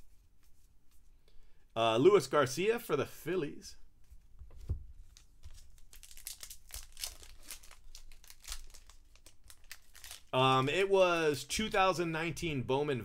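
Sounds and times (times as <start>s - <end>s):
plastic wrapper crinkling and tearing: 5.0s - 10.8s.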